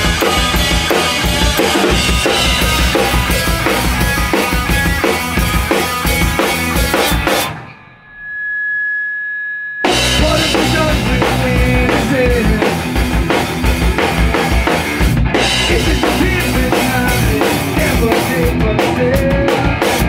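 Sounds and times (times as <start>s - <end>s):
rock band playing: 0.0s - 7.9s, 9.8s - 20.0s
steady high tone: 7.5s - 12.0s.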